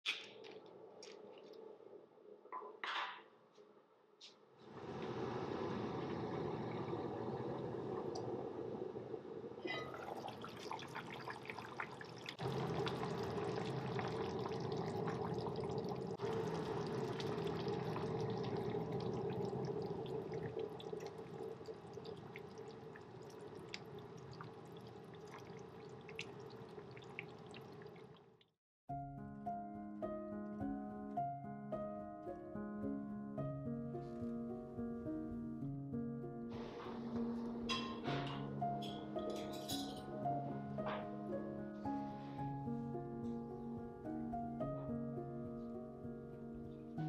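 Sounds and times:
thick stew bubbling in pot: 4.6s - 28.4s.

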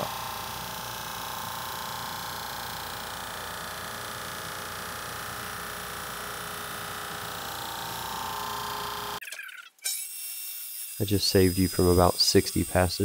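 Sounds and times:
drum sander running: 0.0s - 9.2s.

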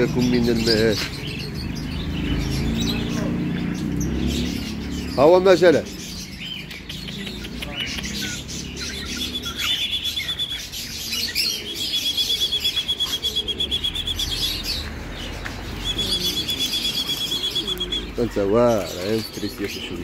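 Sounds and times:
songbird chirping and trilling: 0.0s - 20.0s.

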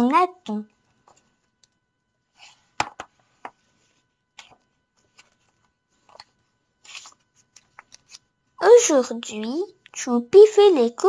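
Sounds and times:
book pages rustling: 2.3s - 8.3s.

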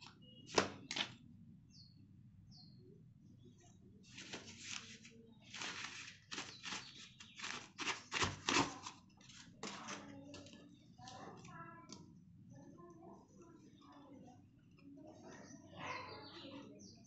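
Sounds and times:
cardboard rustling and scraping: 4.1s - 10.1s.

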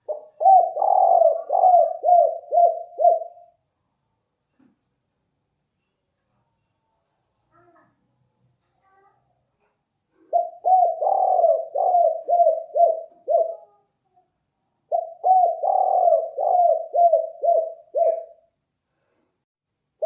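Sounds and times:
dove cooing: 0.0s - 3.6s, 10.1s - 13.8s, 14.9s - 18.5s.

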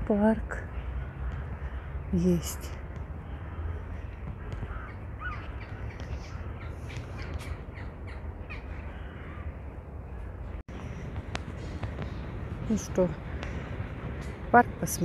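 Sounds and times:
steady low rumble: 0.0s - 15.0s
birds harsh calls: 0.7s - 11.0s.

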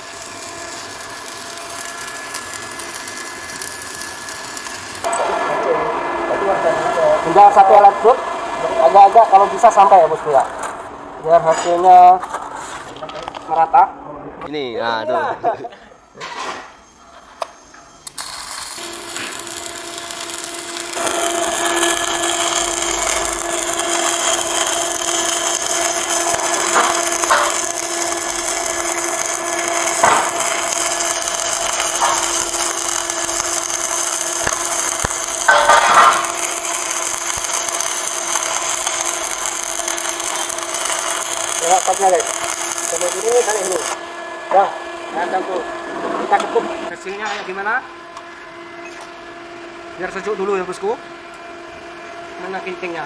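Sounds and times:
welding arc crackling hiss: 0.0s - 10.9s, 17.4s - 44.2s
welder hum: 0.0s - 13.9s, 16.6s - 53.0s.

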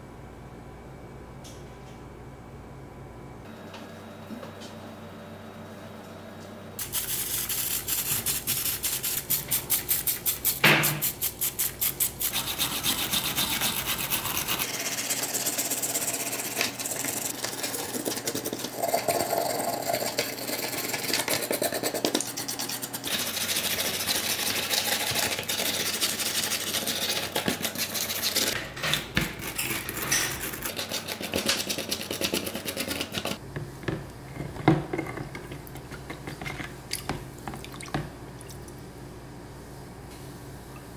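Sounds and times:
wire brush scrubbing metal: 6.8s - 19.4s.

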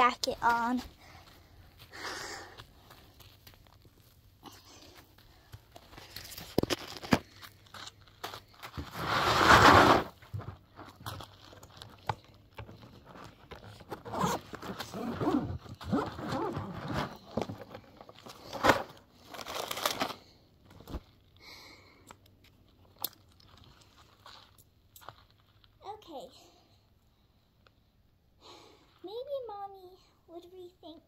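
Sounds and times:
bag and jacket rustling: 13.9s - 18.8s.

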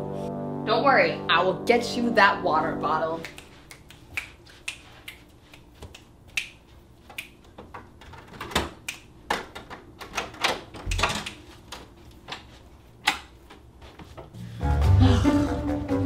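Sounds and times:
fingers snapping: 3.2s - 7.5s, 8.8s - 9.1s, 10.9s - 11.4s.

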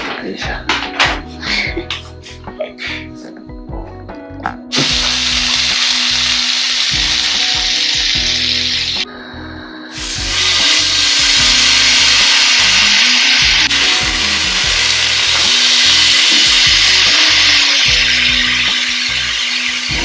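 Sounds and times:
beef sizzling in frying pan: 4.7s - 9.0s, 10.0s - 20.0s.

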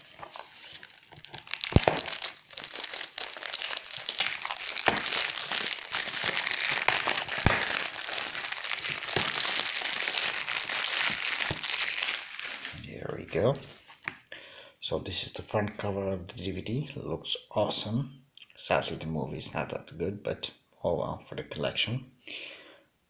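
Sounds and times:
plastic wrap crinkling: 0.0s - 14.3s.

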